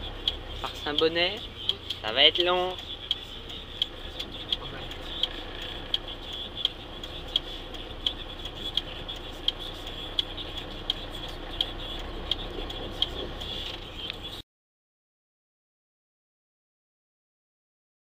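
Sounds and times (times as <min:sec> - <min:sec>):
low cab rumble: 0:00.0 - 0:14.4
turn signal ticking: 0:00.0 - 0:14.4.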